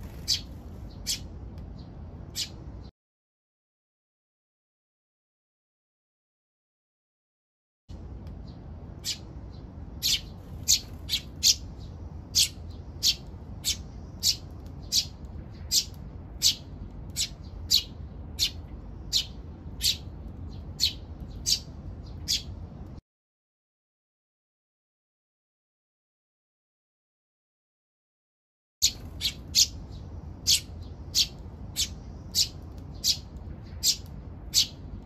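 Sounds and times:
low background hum: 0:00.0 - 0:02.9, 0:07.9 - 0:23.0, 0:28.8 - 0:35.0
sparrows chirping: 0:00.0 - 0:02.9, 0:08.3 - 0:22.8, 0:28.8 - 0:35.0.

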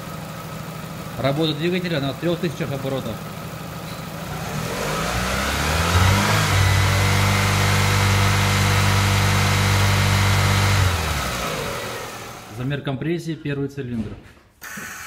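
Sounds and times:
car engine revving: 0:04.2 - 0:12.6.

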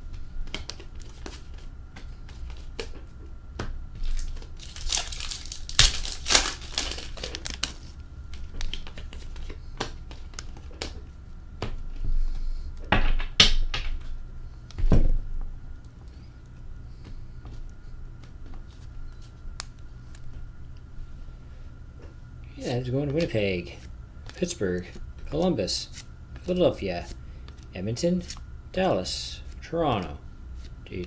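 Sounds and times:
foil wrappers tearing: 0:04.0 - 0:07.9.

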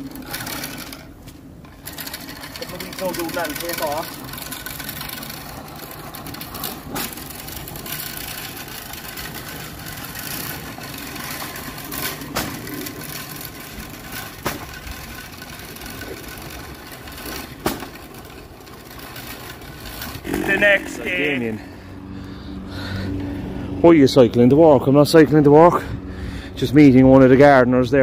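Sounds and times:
push spreader rattling whirr: 0:00.0 - 0:23.8.

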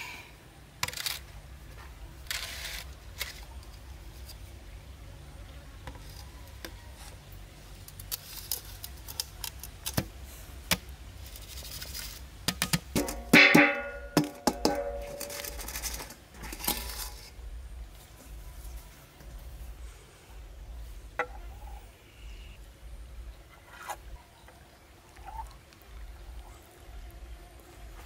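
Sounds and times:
metal basin clicking and scraping on stone: 0:11.4 - 0:17.4.

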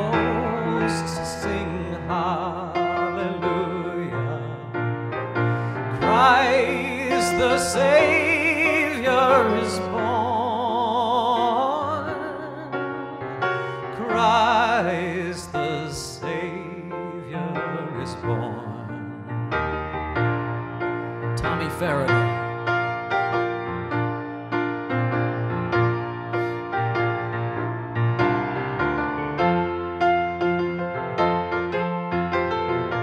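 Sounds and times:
man singing with vibrato: 0:00.0 - 0:04.8, 0:05.7 - 0:12.8, 0:13.7 - 0:19.3, 0:21.4 - 0:22.4
grand piano: 0:00.0 - 0:33.0.

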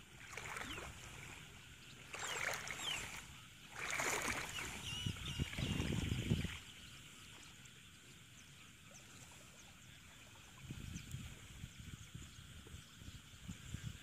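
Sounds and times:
water sloshing and splashing: 0:00.0 - 0:07.7.

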